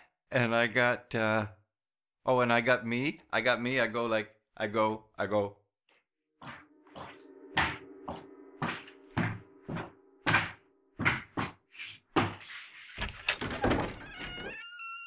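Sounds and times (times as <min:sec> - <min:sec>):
recorded footsteps: 0:06.4 - 0:12.7
door rattling open: 0:13.0 - 0:14.6.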